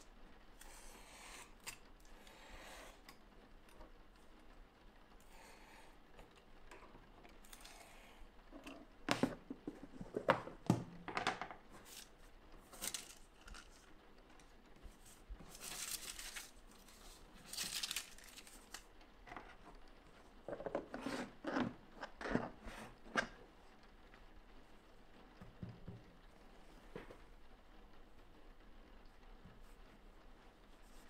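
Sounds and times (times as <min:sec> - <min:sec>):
paper rustling: 0:11.6 - 0:19.7
craft knife slicing paper: 0:15.4 - 0:18.8.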